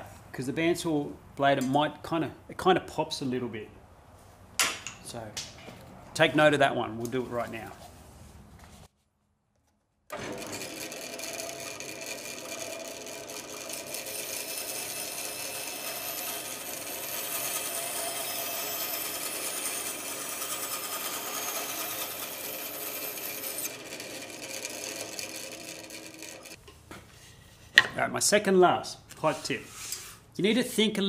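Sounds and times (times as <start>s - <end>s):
bandsaw running: 10.1s - 26.6s
saw blade cutting plywood: 10.1s - 26.6s.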